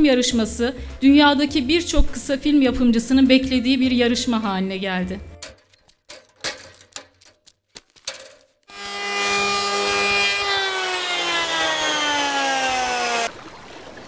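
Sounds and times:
clicks and knocks: 5.4s - 8.6s
power planer on wood: 8.7s - 13.3s.

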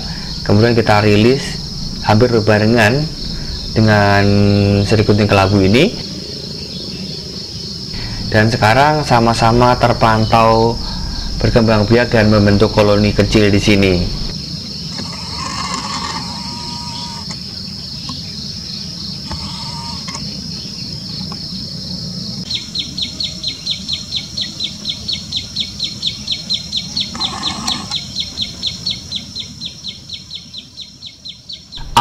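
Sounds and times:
high insect trill: 0.0s - 32.0s
short bird calls: 22.5s - 30.5s.

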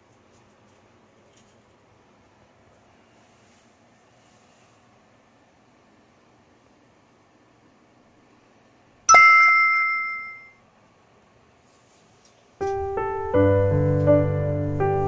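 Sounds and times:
bright bell-like chime: 9.1s - 10.6s
piano background music: 12.6s - 15.0s.

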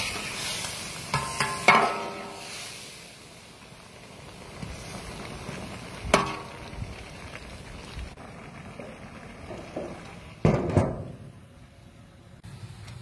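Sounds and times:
steel ladle knocking on wok: 1.1s - 2.4s
metal lid clanking on wok: 1.1s - 2.5s.

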